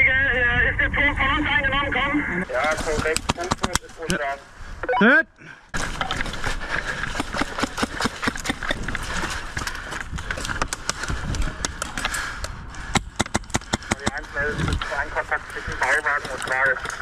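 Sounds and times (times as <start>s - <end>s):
airsoft rifle shots: 12.9s - 14.2s.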